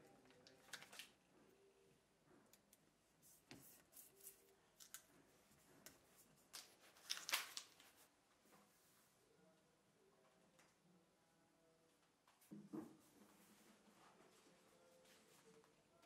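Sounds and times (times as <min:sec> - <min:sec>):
plastic sheet rustling and crackling: 0:05.7 - 0:08.1.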